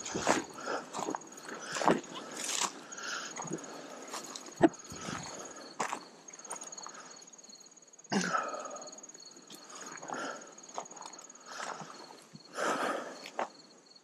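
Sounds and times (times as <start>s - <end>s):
footsteps through dry grass: 0.0s - 2.8s
insects trilling: 0.0s - 14.0s.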